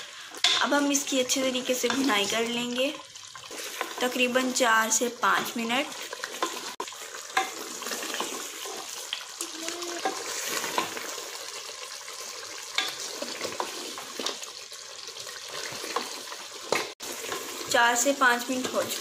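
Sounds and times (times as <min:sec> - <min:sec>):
meat sizzling in oil: 0:00.0 - 0:19.0
spatula scraping a metal pot: 0:05.9 - 0:09.0.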